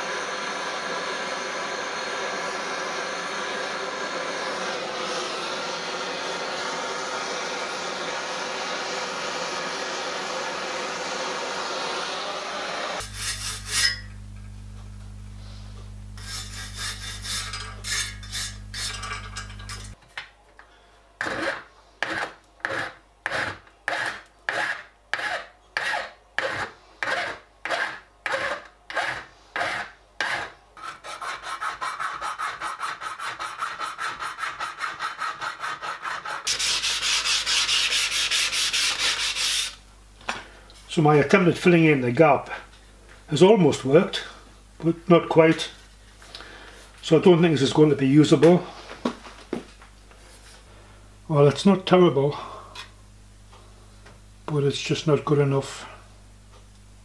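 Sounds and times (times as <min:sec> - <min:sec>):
blowtorch flame hissing: 0:00.0 - 0:14.3, 0:36.4 - 0:40.4
abrasive block rubbing brass: 0:13.0 - 0:14.2, 0:16.1 - 0:19.2
file strokes on metal: 0:13.0 - 0:14.2, 0:16.1 - 0:20.0, 0:21.2 - 0:39.8.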